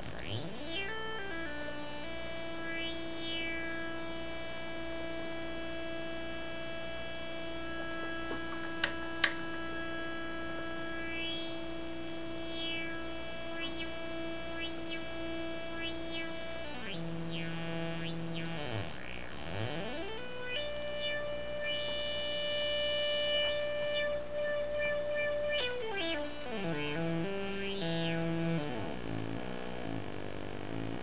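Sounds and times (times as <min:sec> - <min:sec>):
buzzy synthesizer note: 0:07.1 - 0:31.0
sharp clicks: 0:08.4 - 0:09.5.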